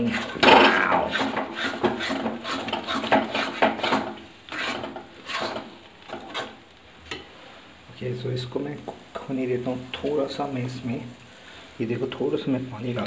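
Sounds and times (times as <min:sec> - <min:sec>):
metal spatula scraping a pan: 0:00.0 - 0:06.6.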